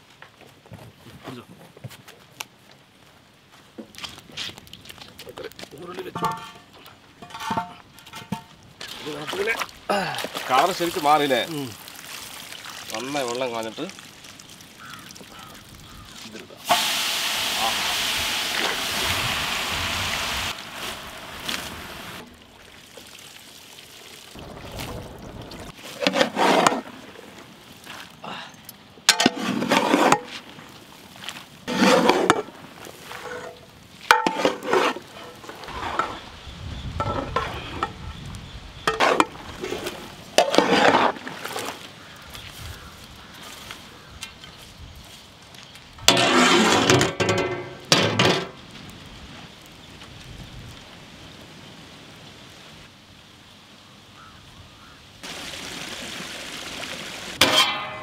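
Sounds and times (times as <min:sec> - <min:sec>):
water pouring off ladle: 0:16.6 - 0:27.3
metal spatula scraping metal pot: 0:25.9 - 0:26.9, 0:29.1 - 0:30.4, 0:31.7 - 0:32.5, 0:33.1 - 0:36.2, 0:38.9 - 0:41.2, 0:46.1 - 0:48.5, 0:57.4 - 0:58.0.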